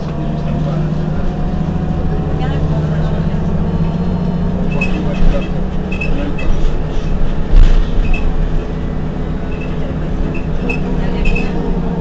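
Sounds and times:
bus engine drone: 0.0s - 12.0s
high squeaks and rattles: 4.7s - 8.4s, 9.5s - 11.7s
thump: 7.5s - 8.0s.

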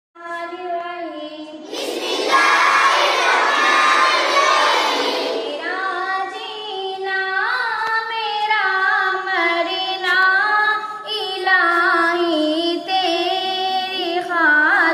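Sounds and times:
child singing alone: 0.2s - 14.9s
children singing: 1.6s - 6.7s.

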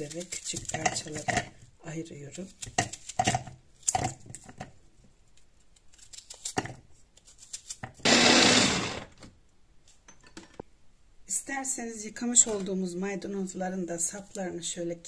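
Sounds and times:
pieces knocking in plastic bowl: 0.6s - 1.6s, 2.6s - 4.7s
electric chopper running: 8.1s - 9.0s.

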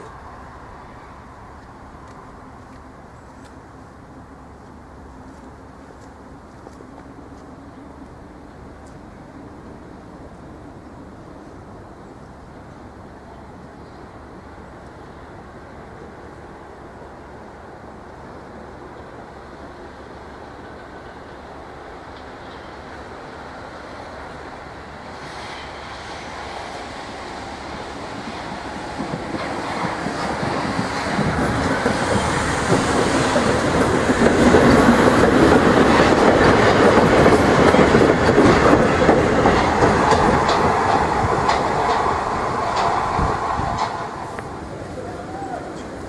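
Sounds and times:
train running past: 0.0s - 46.0s
wheels clattering over rail joints: 28.2s - 44.6s.

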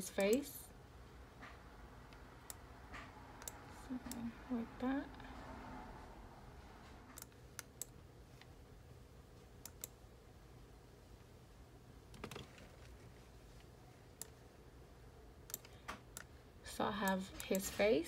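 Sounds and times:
low steady hum: 0.0s - 18.0s
computer mouse clicks: 1.4s - 4.2s, 7.1s - 8.5s, 9.6s - 10.0s, 15.5s - 16.3s.

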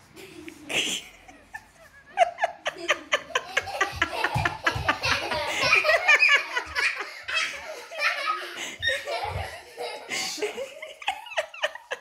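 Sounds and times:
children giggling: 0.2s - 12.0s
hearty laughter: 0.7s - 12.0s.

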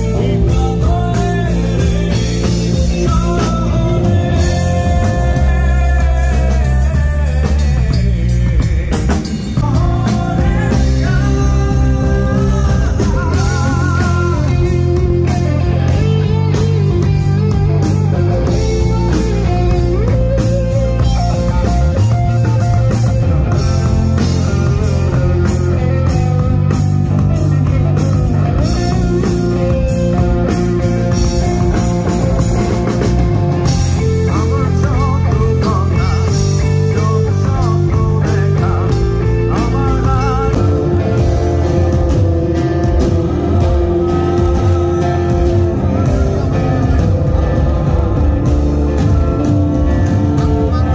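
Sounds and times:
bent lead guitar notes: 0.0s - 50.9s
rock band playing: 0.0s - 50.9s.

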